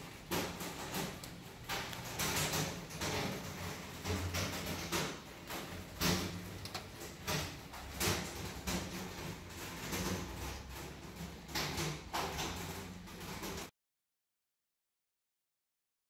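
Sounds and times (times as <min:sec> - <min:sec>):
heavy rain pelting windows and roofs: 0:00.0 - 0:13.7.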